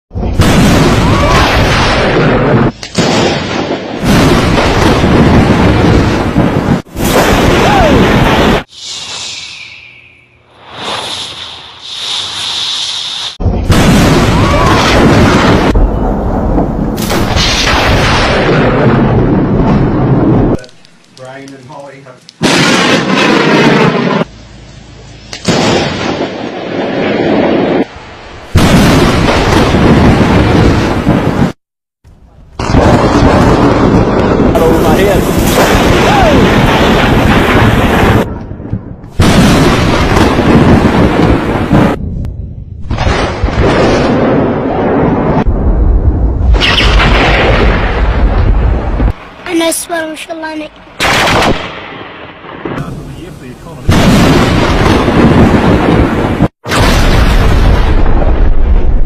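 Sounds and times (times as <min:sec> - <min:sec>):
thunder crashes and rumble: 0:00.1 - 0:08.7, 0:13.4 - 0:20.6, 0:22.4 - 0:24.3, 0:25.5 - 0:31.6, 0:32.6 - 0:49.4, 0:51.0 - 0:59.0.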